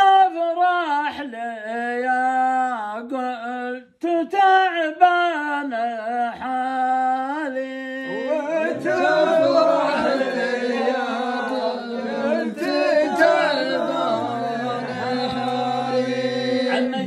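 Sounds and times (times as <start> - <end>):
men chanting together: 6.3 - 17.0.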